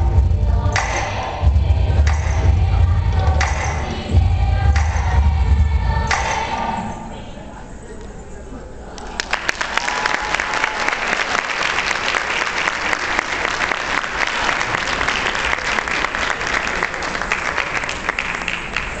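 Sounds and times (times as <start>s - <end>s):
audience applauding: 9.1s - 19.0s.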